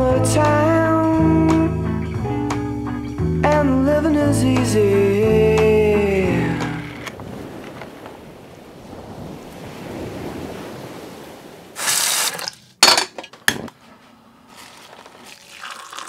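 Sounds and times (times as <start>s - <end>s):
short hiss: 11.8s - 12.5s.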